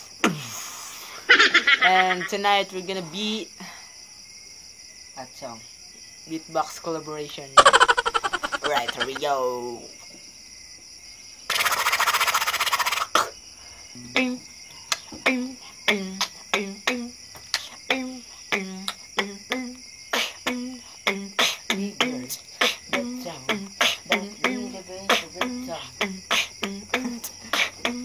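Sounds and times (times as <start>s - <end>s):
crickets chirping: 0.0s - 28.0s
person beatboxing: 20.2s - 28.0s.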